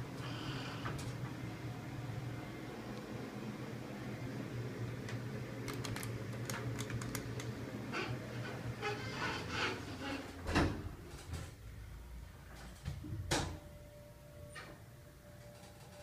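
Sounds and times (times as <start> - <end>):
elevator car humming: 0.0 - 10.1.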